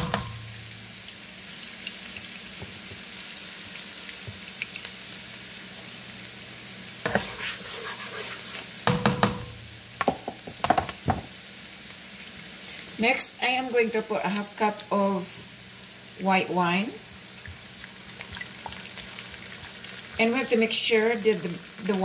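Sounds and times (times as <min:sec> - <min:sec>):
onions sizzling in oil: 0:00.0 - 0:22.0
spatula scraping a pan: 0:07.0 - 0:09.1.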